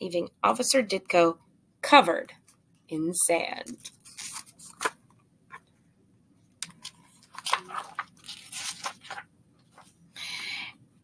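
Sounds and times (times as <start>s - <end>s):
book pages rustling: 3.7s - 5.7s, 6.6s - 10.0s.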